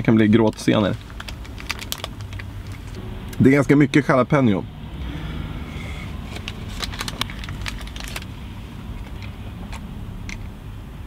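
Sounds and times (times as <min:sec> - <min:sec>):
paper wrapper crinkling: 0:00.3 - 0:03.0, 0:06.2 - 0:08.4.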